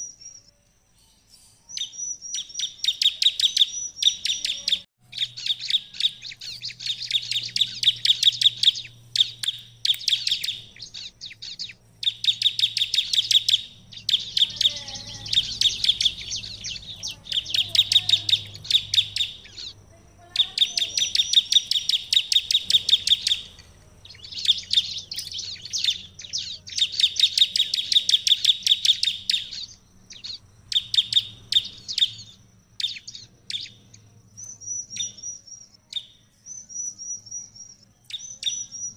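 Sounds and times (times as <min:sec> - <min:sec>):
bird singing high rapid notes: 0:00.0 - 0:38.9.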